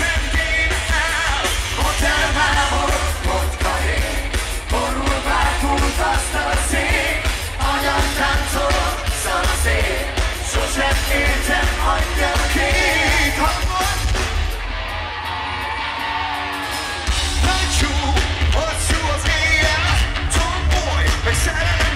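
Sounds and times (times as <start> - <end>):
person singing: 0.0 - 14.4
live rock band: 0.0 - 21.9.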